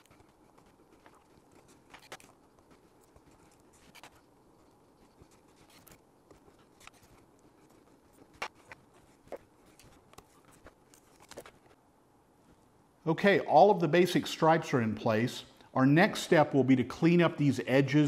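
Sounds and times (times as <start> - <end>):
masking tape clicks and scratches: 0.0 - 11.8.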